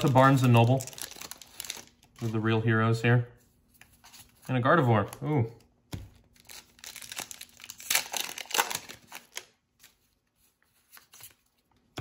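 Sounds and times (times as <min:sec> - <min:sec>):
foil wrapper crinkling: 0:00.0 - 0:02.4, 0:06.3 - 0:10.0
faint rustling of cards: 0:00.0 - 0:12.0.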